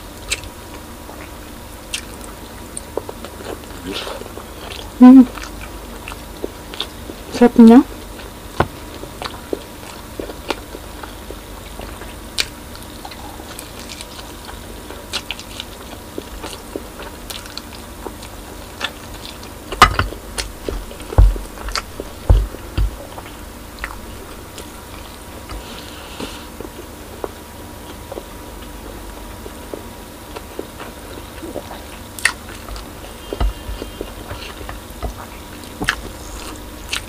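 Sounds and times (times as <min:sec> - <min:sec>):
close chewing with wet smacks: 0:00.1 - 0:37.0
loud low thumps: 0:20.1 - 0:25.4.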